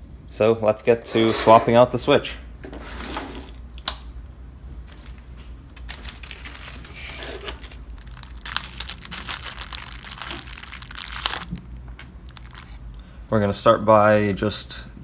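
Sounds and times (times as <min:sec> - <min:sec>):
plastic bag crinkling: 0:04.9 - 0:12.9.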